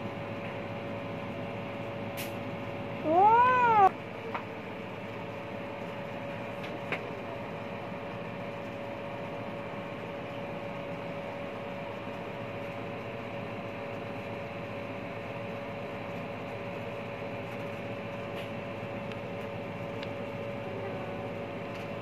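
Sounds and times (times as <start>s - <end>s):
steady hum: 0.0s - 22.0s
cat meowing: 3.0s - 3.9s.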